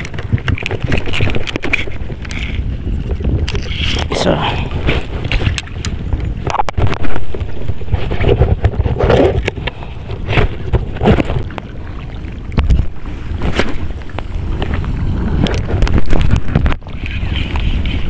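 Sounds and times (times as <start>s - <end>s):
hands handling fishing reel: 0.0s - 4.1s
wind buffeting microphone: 0.0s - 18.0s.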